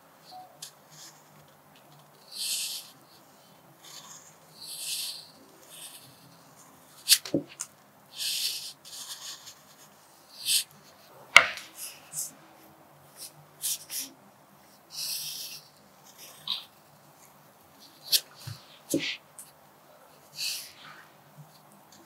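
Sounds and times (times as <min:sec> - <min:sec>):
pencil scratching on paper: 0:02.2 - 0:07.3, 0:08.2 - 0:12.1, 0:17.9 - 0:19.2.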